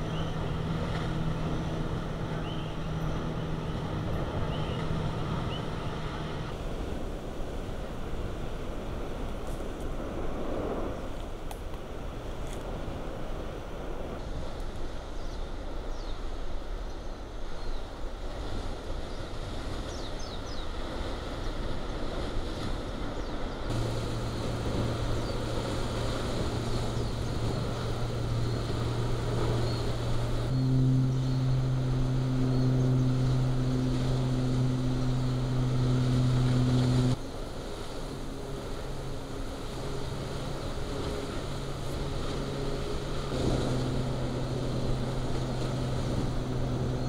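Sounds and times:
steady low hum: 23.7 - 47.0.

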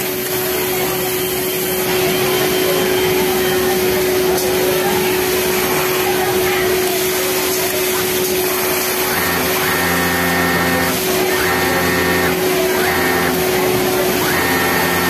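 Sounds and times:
sewing machine stitching: 5.2 - 15.0
steady hum: 8.0 - 15.0.

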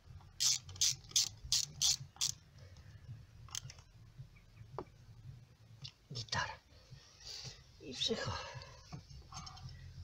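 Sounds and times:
hand ratchet clicking: 0.4 - 2.4.

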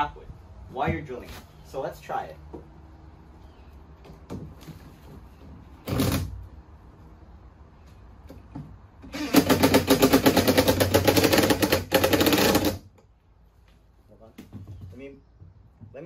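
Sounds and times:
cordless drill driving a screw: 9.1 - 9.8
drill rapid hammering: 9.1 - 12.8.

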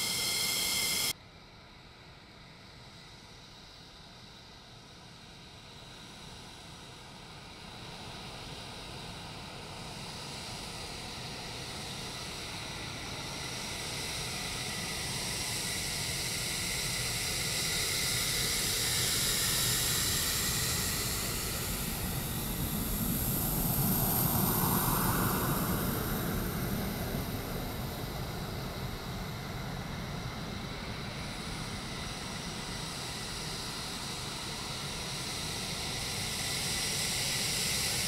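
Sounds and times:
fighter jet engines whining: 0.0 - 1.1, 12.1 - 38.0
jet rushing noise: 20.1 - 29.6.

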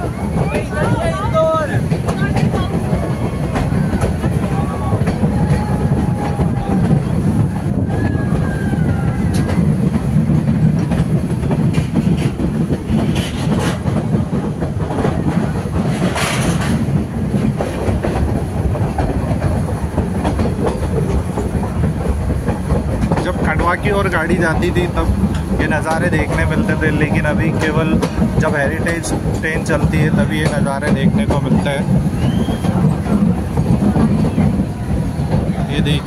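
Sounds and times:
train rumble: 0.0 - 36.0
train wheels clattering over rails: 0.0 - 36.0
wheel squeals: 32.1 - 33.0.

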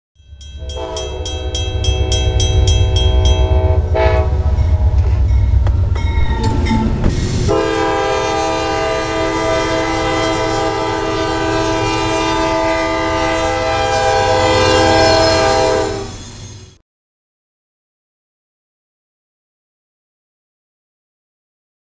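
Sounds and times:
crossing bell dinging: 0.2 - 8.0
diesel locomotive engine rumble: 0.2 - 16.8
locomotive horn: 0.6 - 5.6, 7.5 - 16.2.

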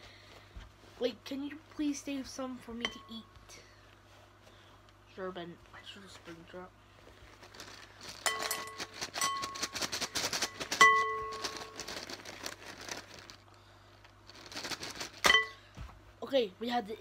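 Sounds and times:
plastic pieces clattering into glass bowl: 8.0 - 13.4
glass bowl ringing: 8.3 - 9.5, 15.3 - 15.6.

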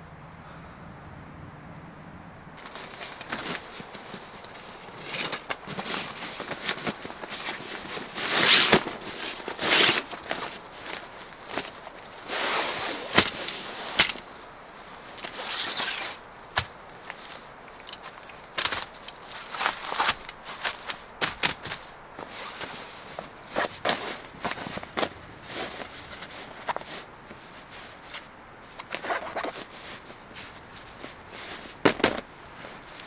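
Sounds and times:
nylon fabric rustling: 2.6 - 33.0
metal frame clicks: 12.8 - 14.3.

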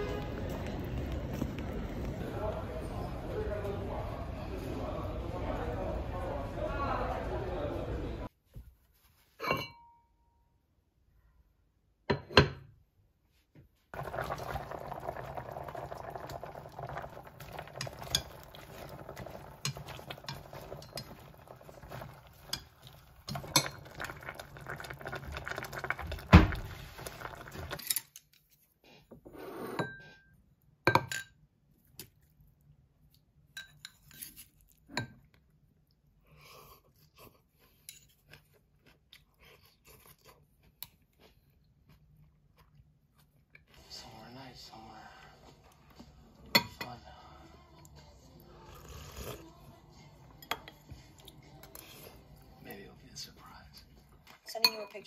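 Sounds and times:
pots and spoon clinking: 9.4 - 10.0, 14.0 - 26.2, 33.6 - 34.3, 46.4 - 47.0, 50.4 - 51.9, 54.5 - 55.0
liquid moving in a pot: 13.9 - 30.3.

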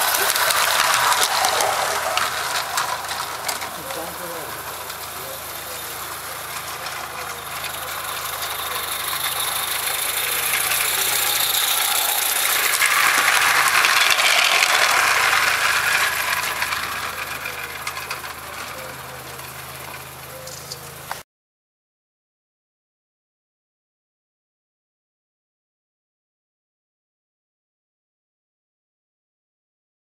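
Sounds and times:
model train wheels rattling on track: 0.0 - 21.2.

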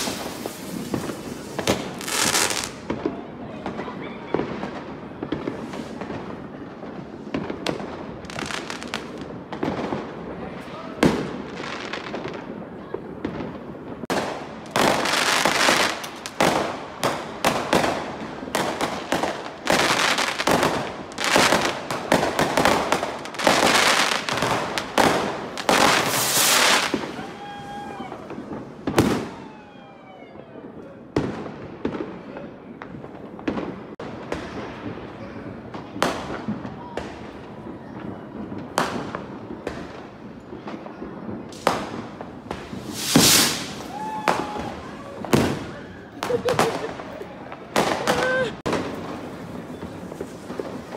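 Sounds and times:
fireworks bangs and crackling: 0.0 - 50.9.

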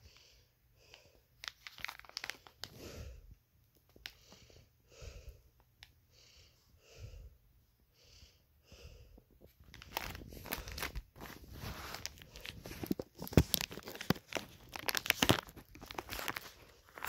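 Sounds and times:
plastic packaging crinkling: 1.4 - 2.8, 9.6 - 17.0
soft breath puffs: 2.2 - 13.2.

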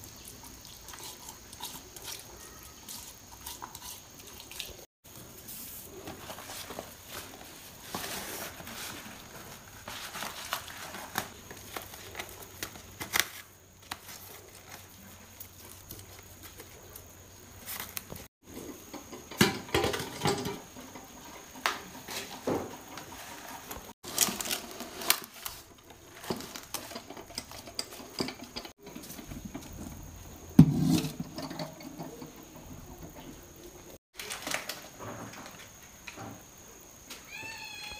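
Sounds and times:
leaves rustling and crackling: 4.5 - 18.3, 23.1 - 26.9.

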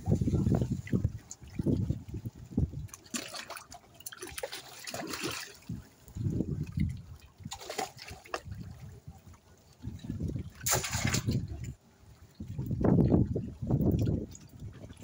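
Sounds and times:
fish splashing in water: 2.8 - 5.9, 6.6 - 9.0, 10.4 - 11.7.

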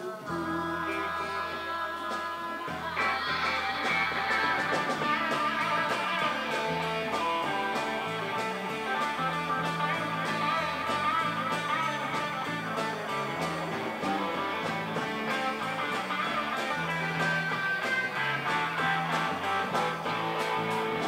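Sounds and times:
bass guitar: 0.0 - 21.0
drum kit beat: 0.0 - 21.0
electric guitar: 0.0 - 21.0.

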